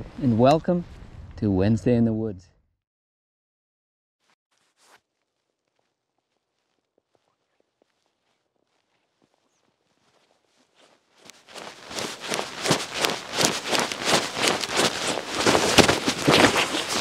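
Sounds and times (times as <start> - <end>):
footsteps crunching in snow: 4.5 - 17.0.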